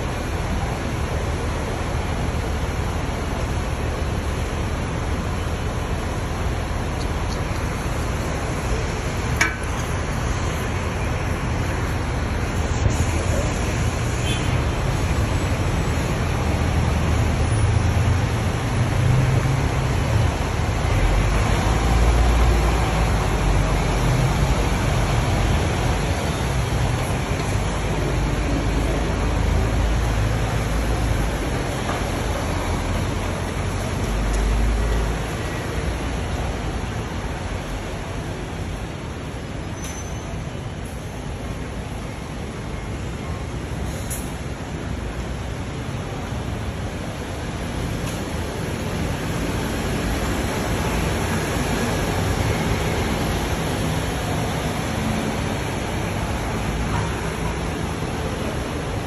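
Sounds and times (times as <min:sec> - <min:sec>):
bus engines rumbling: 0:00.0 - 0:59.0.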